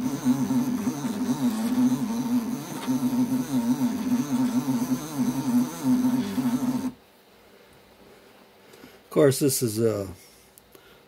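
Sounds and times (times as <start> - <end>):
motor humming with changing pitch: 0.0 - 7.0.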